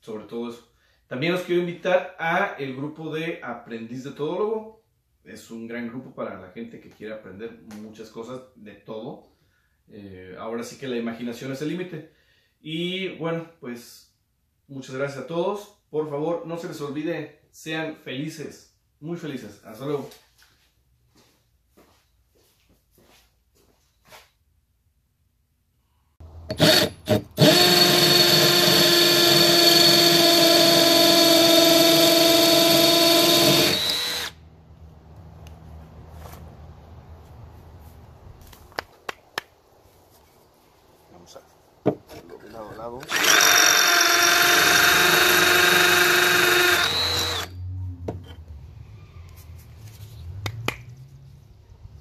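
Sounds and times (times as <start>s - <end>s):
hammer drill drilling into brick: 26.5s - 34.4s, 43.0s - 47.6s.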